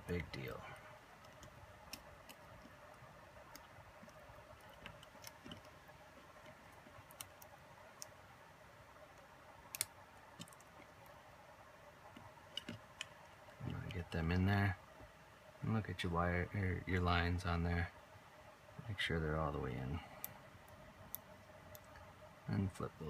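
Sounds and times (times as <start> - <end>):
small parts clicking and tapping: 1.1 - 8.2, 9.2 - 11.2, 12.1 - 14.0.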